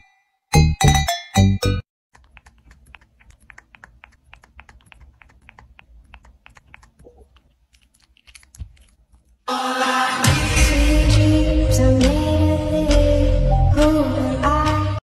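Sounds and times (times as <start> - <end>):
puppy sucking a pacifier: 2.2 - 9.5
loud music: 9.5 - 13.5.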